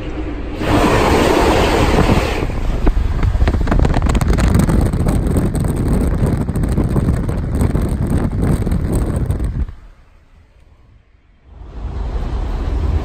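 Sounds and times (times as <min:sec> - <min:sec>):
wind buffeting microphone: 0:00.0 - 0:10.2
train rumbling on rails: 0:00.0 - 0:13.0.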